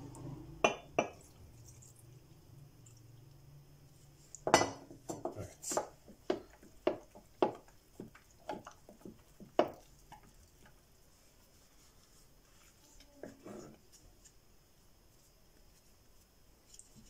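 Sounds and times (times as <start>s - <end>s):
stirring liquid in a jar: 0.0s - 3.3s, 3.9s - 14.0s.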